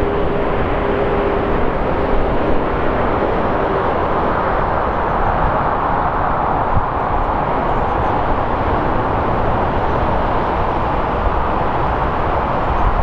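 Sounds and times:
jet engines roaring on landing: 0.0s - 13.0s.

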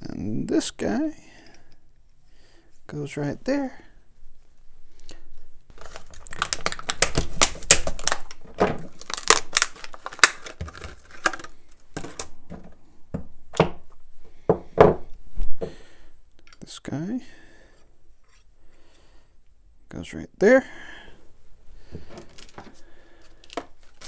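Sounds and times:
plastic packaging crinkling: 5.7s - 12.4s, 22.2s - 24.0s.

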